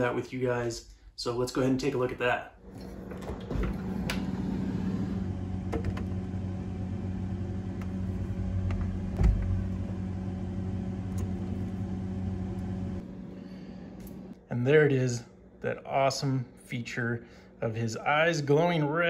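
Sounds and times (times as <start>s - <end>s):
refrigerator humming: 1.2s - 19.0s
thump: 9.2s - 9.6s.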